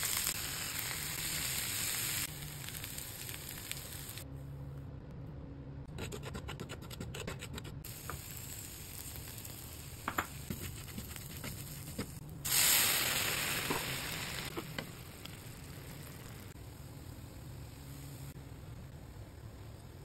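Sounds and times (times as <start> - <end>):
water sizzling in a hot pan: 0.0 - 4.2, 7.9 - 11.9, 12.5 - 16.6.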